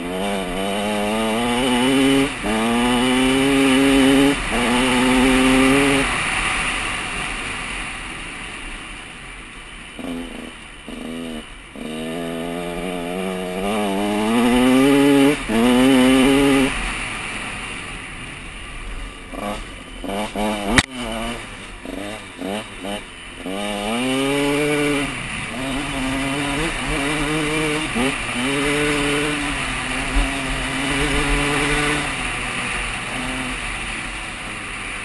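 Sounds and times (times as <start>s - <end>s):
dirt bike engine revving: 0.0s - 9.1s, 9.7s - 35.0s
wind noise: 13.3s - 35.0s.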